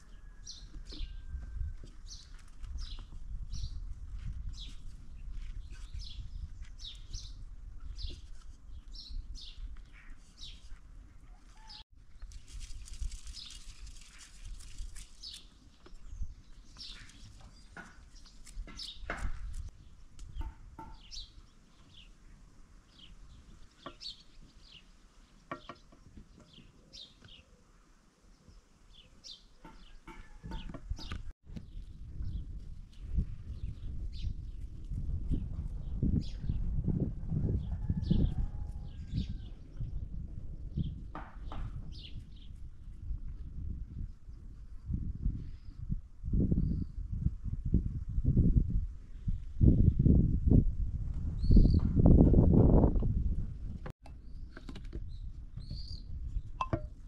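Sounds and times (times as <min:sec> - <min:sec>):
small birds chirping: 0:11.6 - 0:36.5, 0:54.1 - 0:56.6.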